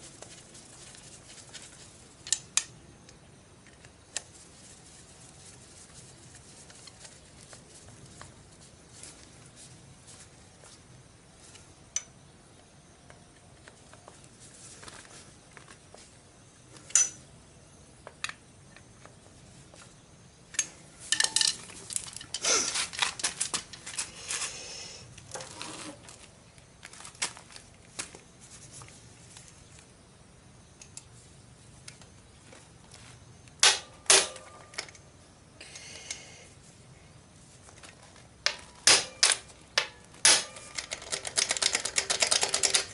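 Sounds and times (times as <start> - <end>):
metal tools clinking and clattering: 16.9 - 17.2, 20.6 - 22.5.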